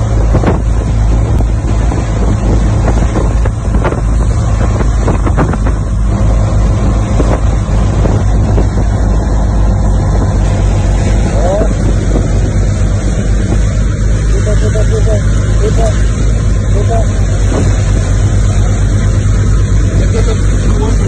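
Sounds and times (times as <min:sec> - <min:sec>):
motorboat engine running: 0:00.0 - 0:21.0
rush of boat wake: 0:00.0 - 0:21.0
wind buffeting microphone: 0:00.0 - 0:21.0.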